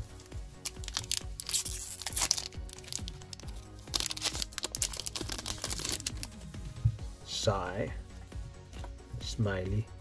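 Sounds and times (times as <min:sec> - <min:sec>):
background music: 0:00.0 - 0:10.0
foil wrapper crinkling and tearing: 0:00.6 - 0:06.4.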